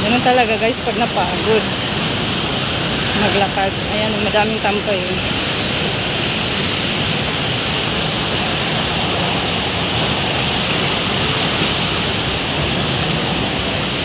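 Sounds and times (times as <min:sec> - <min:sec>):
city traffic rush: 0:00.0 - 0:05.9.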